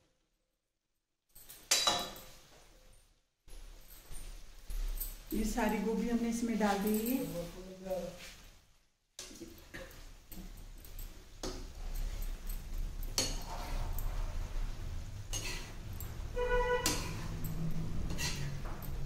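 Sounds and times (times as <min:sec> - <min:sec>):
metal ladle scraping pan: 0:13.2 - 0:14.6, 0:15.2 - 0:18.9.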